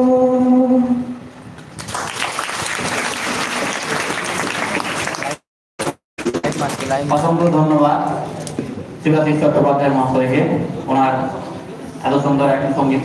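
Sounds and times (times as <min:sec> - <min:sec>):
man singing a held note: 0:00.0 - 0:01.2
audience applauding: 0:01.8 - 0:05.5.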